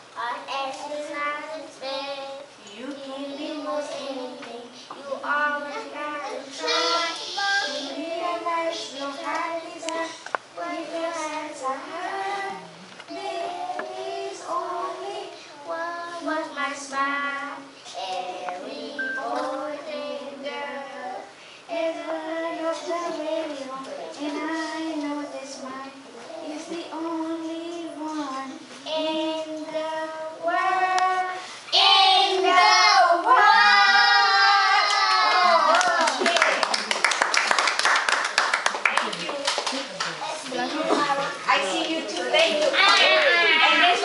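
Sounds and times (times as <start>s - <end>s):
children singing: 3.0s - 35.7s.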